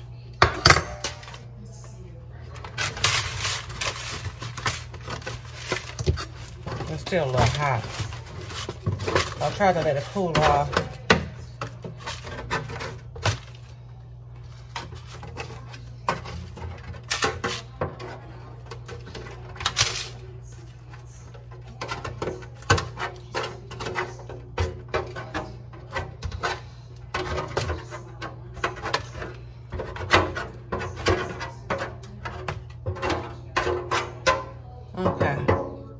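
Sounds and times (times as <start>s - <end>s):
metal spatula scraping metal pan: 2.8s - 11.0s.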